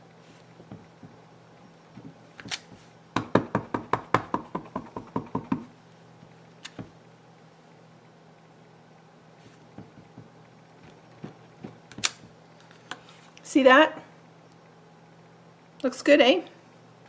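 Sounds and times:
block knocks: 9.7s - 12.0s.

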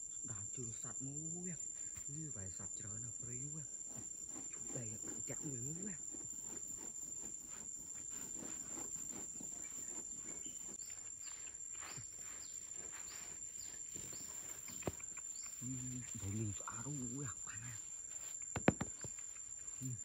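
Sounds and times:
high-pitched insect trill: 0.0s - 20.0s
scraping and brushing sandy soil: 1.2s - 20.0s
sharp tap: 18.5s - 19.2s.

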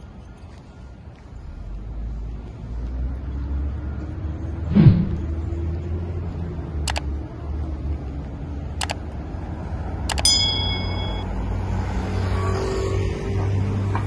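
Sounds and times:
cars passing rumble: 0.0s - 14.0s
sharp clicks: 6.9s - 7.1s, 8.8s - 9.1s, 10.1s - 11.2s
brief ringing ding: 10.1s - 11.4s.

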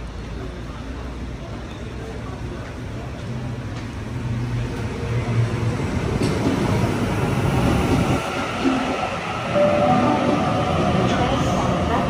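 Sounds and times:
train wheel and rail noise: 0.0s - 12.0s
electric train hum: 3.8s - 12.0s.

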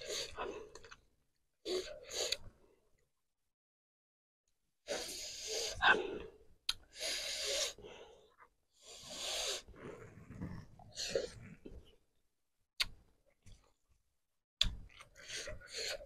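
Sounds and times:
person breathing hard through mouth: 4.9s - 11.7s.

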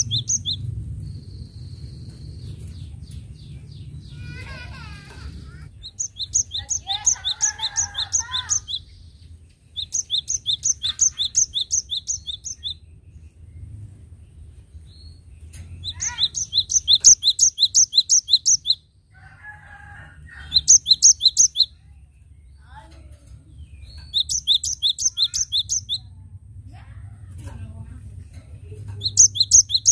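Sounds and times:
bird singing rapid high notes: 0.0s - 0.6s, 5.7s - 12.9s, 15.0s - 18.9s, 20.6s - 21.8s, 23.6s - 26.1s, 29.0s - 29.9s.

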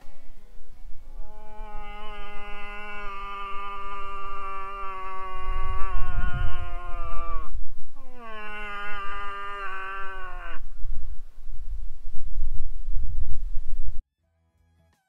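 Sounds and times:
moose moaning call: 0.1s - 11.0s.

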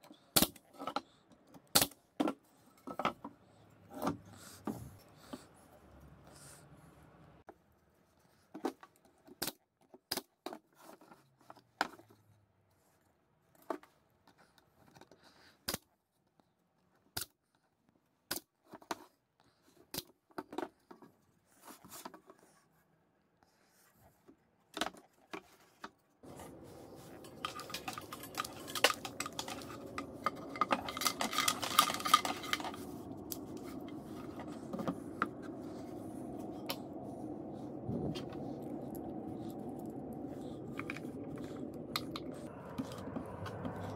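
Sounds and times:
steady low hum: 26.2s - 43.9s
metallic clinking and rattling: 26.3s - 34.9s.

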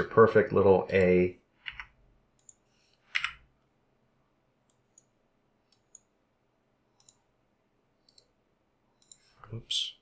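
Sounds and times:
computer mouse clicks: 0.9s - 3.4s, 4.6s - 6.1s, 7.0s - 7.3s, 8.0s - 8.4s, 9.0s - 9.3s.

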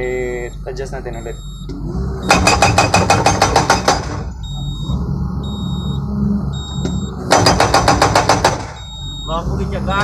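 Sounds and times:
excavator engine running: 0.0s - 10.0s
high electronic beeps: 0.0s - 10.0s
hydraulic breaker hammering: 2.2s - 4.3s, 6.8s - 8.8s.

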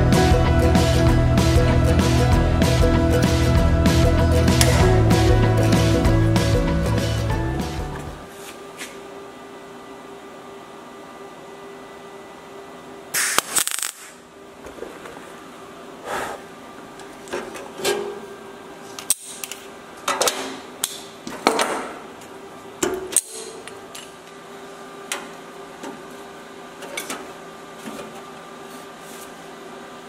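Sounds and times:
welder crackling: 13.2s - 14.2s.

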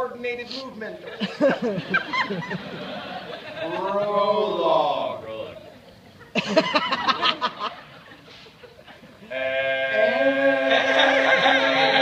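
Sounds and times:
men singing a held note: 9.8s - 12.0s.

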